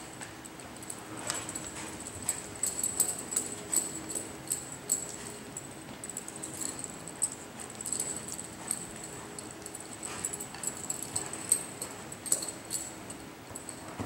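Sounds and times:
horse hooves clicking on dirt: 0:00.1 - 0:13.8.

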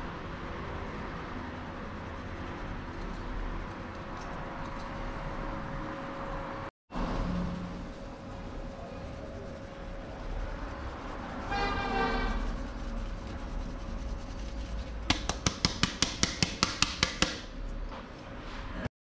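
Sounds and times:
street noise: 0:00.0 - 0:18.9
vehicle horn: 0:11.4 - 0:12.6
rapid sharp knocking: 0:15.0 - 0:17.5.

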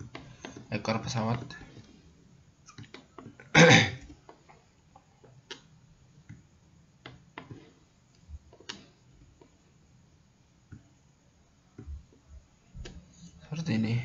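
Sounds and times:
computer mouse clicks: 0:02.6 - 0:03.4
throat clearing: 0:03.4 - 0:04.1.

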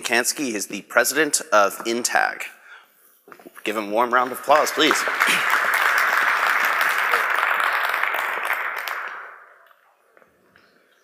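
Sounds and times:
audience applauding: 0:04.2 - 0:09.7.

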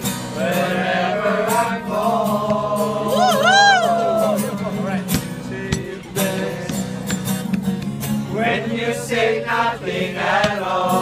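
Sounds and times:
guitar plucks and strums: 0:00.0 - 0:11.0.

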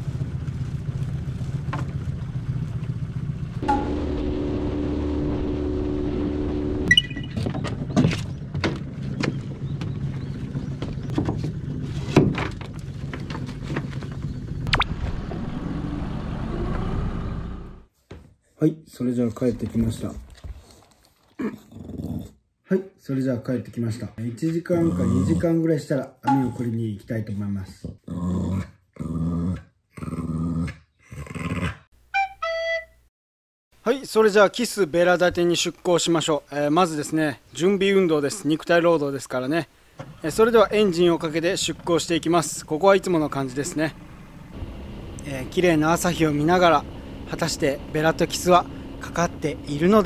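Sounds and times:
boat engine humming: 0:00.0 - 0:17.9, 0:39.8 - 0:50.0
two-note chime: 0:03.6 - 0:04.2
dog grumbling: 0:21.4 - 0:22.4, 0:24.8 - 0:25.5, 0:28.0 - 0:31.9.

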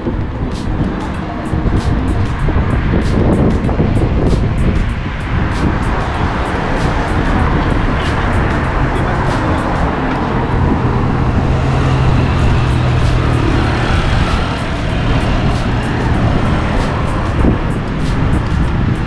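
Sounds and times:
road traffic noise: 0:00.0 - 0:19.0
vehicle engine humming close by: 0:00.0 - 0:19.0.

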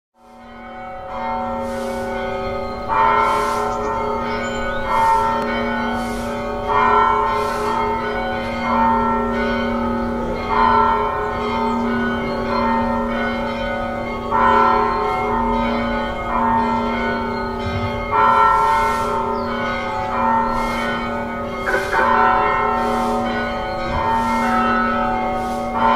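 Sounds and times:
church bells tolling: 0:00.2 - 0:25.9.

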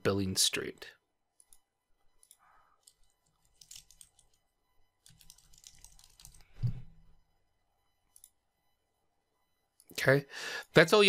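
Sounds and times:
typing on computer keyboard: 0:02.2 - 0:04.4, 0:05.0 - 0:06.5.

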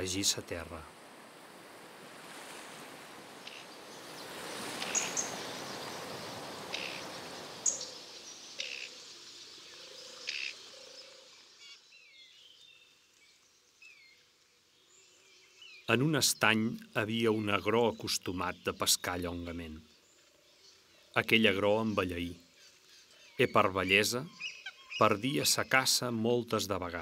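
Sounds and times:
soft rushing wash: 0:00.0 - 0:09.8
birds twittering: 0:02.7 - 0:27.0
sharp bird calls: 0:03.4 - 0:12.9, 0:15.5 - 0:25.8.

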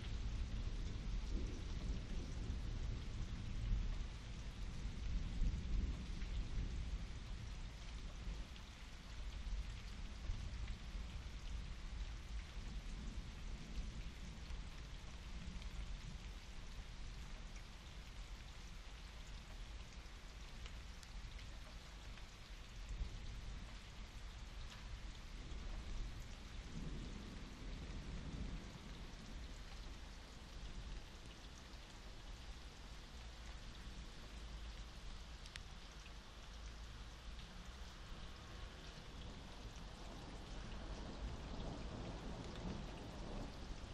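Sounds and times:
distant thunder rumble: 0:00.0 - 0:08.4
steady rain falling: 0:00.0 - 0:43.9.

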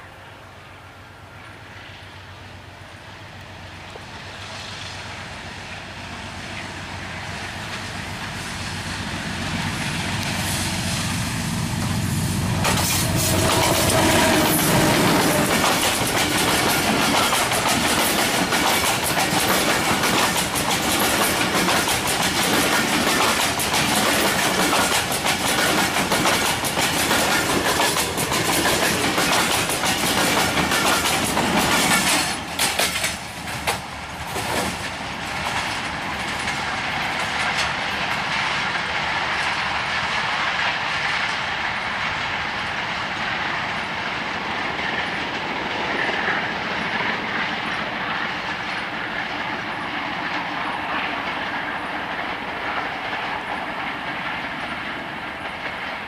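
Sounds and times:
diesel locomotive passing: 0:00.0 - 0:56.0
train wheels clicking over rails: 0:03.7 - 0:56.0.

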